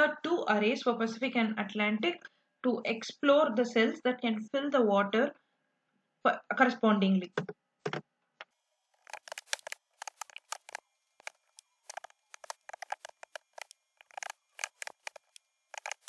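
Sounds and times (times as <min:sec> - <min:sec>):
keyboard typing clicks: 0:09.1 - 0:16.0.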